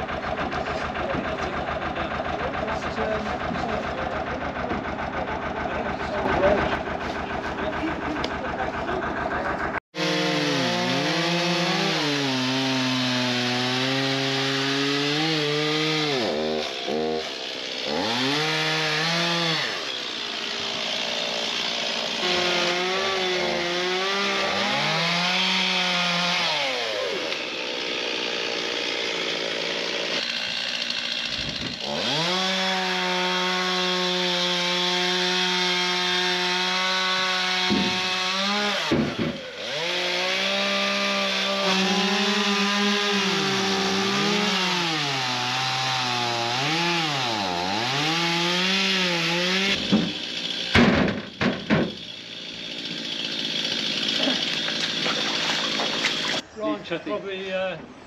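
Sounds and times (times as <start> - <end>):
chainsaw cutting wood: 0.0 - 9.0, 9.7 - 56.4
low engine ticking over: 0.0 - 9.8.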